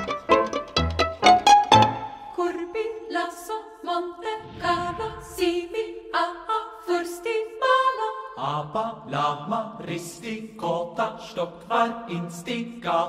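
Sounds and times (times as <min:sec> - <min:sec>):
plucked string notes: 0:00.0 - 0:02.4
a cappella voices chanting: 0:02.4 - 0:13.0.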